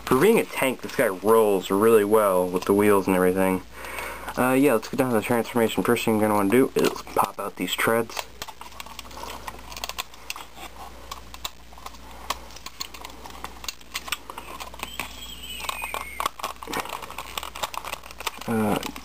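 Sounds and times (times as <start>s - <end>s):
plastic toy parts clicking: 8.0s - 19.0s.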